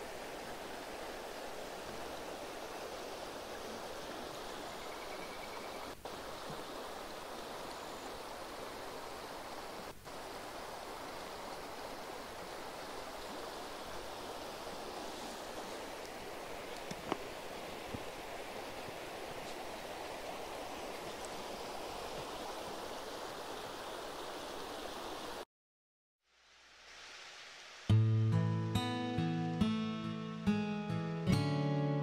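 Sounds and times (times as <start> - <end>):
creek water rushing: 0.0 - 25.4.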